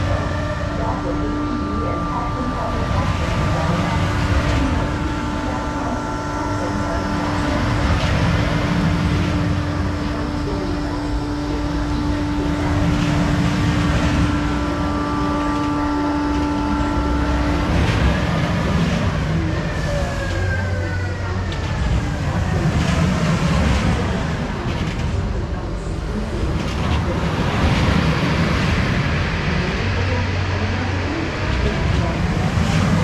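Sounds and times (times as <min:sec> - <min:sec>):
amusement ride mechanical rumble: 0:00.0 - 0:33.0
held hum: 0:00.0 - 0:33.0
people's voices: 0:00.0 - 0:33.0.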